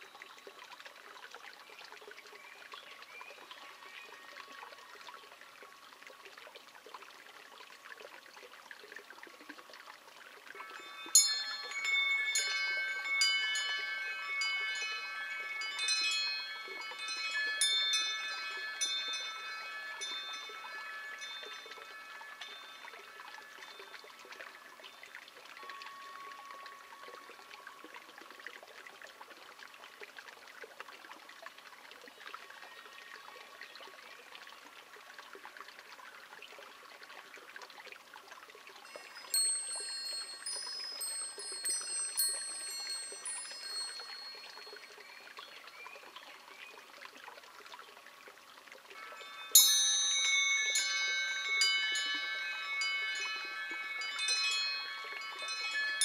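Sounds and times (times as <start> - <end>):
water trickling and dripping: 0.0 - 56.0
wind chimes ringing: 10.3 - 28.8, 38.7 - 46.2, 48.8 - 56.0.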